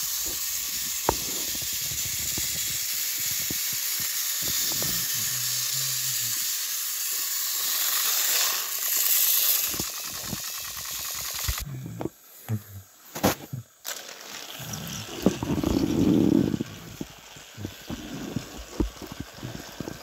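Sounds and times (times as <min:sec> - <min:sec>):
toy train motors whirring: 0:00.0 - 0:12.2, 0:13.1 - 0:20.0
plastic toys clicking and knocking: 0:00.1 - 0:05.6, 0:06.2 - 0:11.6, 0:13.8 - 0:14.6.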